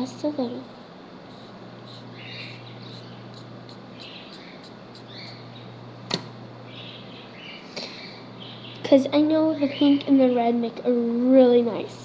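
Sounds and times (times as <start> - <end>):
chalk pastel scratching paper towel: 1.3 - 2.1
sharp click: 6.1 - 6.4.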